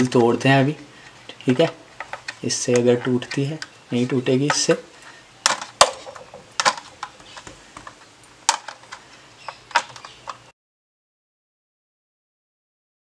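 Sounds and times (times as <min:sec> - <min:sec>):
plastic packaging clicks and crackles: 0:04.4 - 0:10.4.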